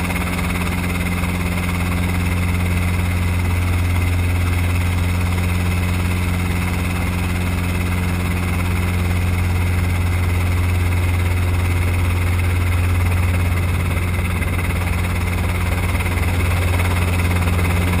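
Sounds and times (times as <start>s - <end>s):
helicopter engine and rotor drone: 0.0s - 18.0s.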